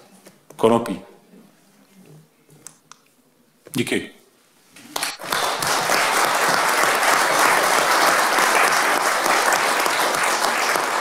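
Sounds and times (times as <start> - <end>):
crowd applauding: 5.2 - 11.0.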